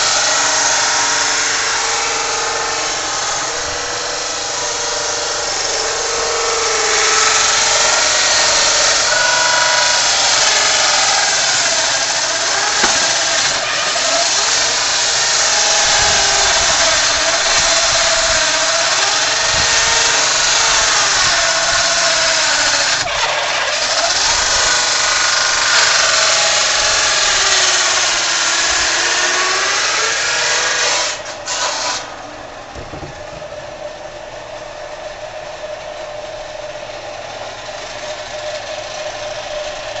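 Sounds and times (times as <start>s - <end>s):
circular saw cutting log: 0.0s - 40.0s.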